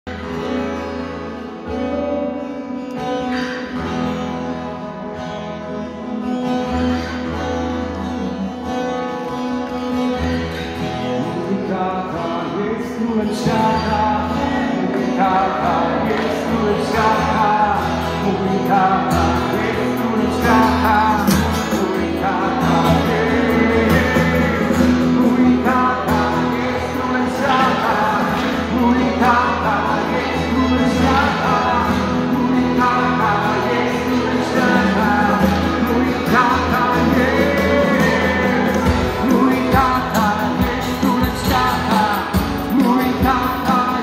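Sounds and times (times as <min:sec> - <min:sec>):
strummed acoustic guitars: 0:00.1 - 0:44.0
people singing: 0:11.2 - 0:44.0
worship band music: 0:11.2 - 0:44.0.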